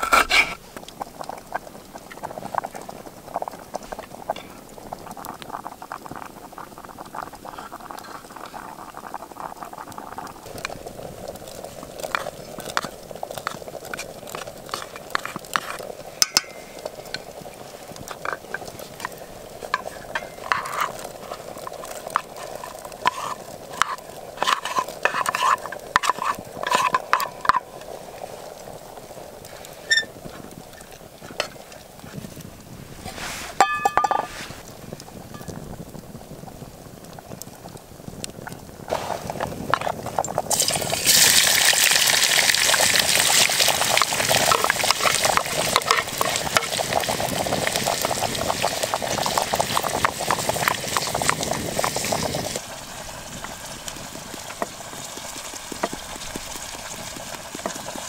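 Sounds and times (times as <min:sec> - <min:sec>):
onions sizzling in hot oil: 0:00.0 - 0:58.0
stew bubbling in pot: 0:00.0 - 0:58.0
spoon clinking against pot: 0:16.2 - 0:16.6, 0:33.6 - 0:34.3.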